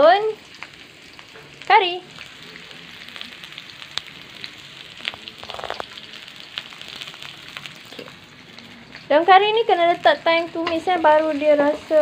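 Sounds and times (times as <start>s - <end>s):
hot oil sizzling in wok: 0.0s - 12.0s
sharp crackles: 2.1s - 9.2s.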